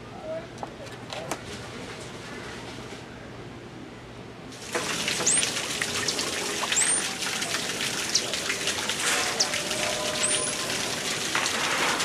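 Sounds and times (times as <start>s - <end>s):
water trickling and splashing: 4.5s - 12.0s.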